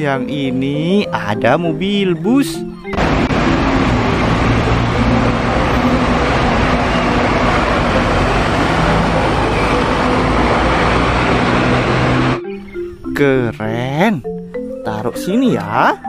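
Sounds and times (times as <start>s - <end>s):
street traffic: 0.0s - 16.0s
bus engine driving past: 2.9s - 12.4s.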